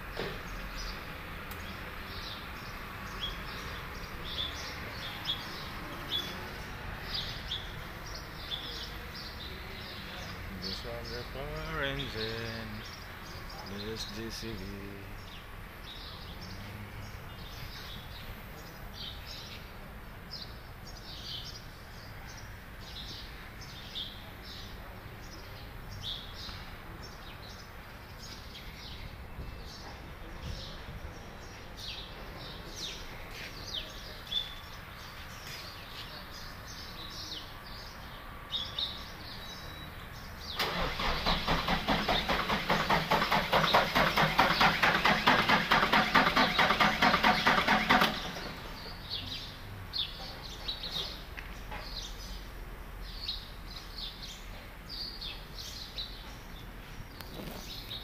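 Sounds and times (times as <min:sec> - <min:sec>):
birds chirping: 0:00.0 - 0:58.0
diesel engine running: 0:40.6 - 0:48.8.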